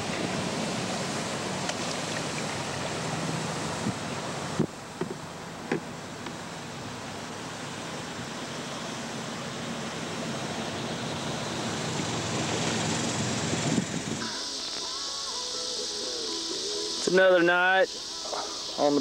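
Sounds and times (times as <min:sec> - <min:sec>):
wind and water rushing: 0:00.0 - 0:19.0.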